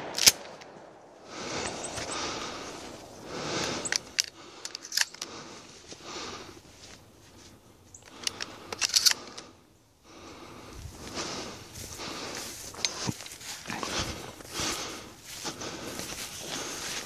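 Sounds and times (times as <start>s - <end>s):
gear clicks and metallic rattles: 8.0s - 9.5s
rustling movement: 10.4s - 17.0s.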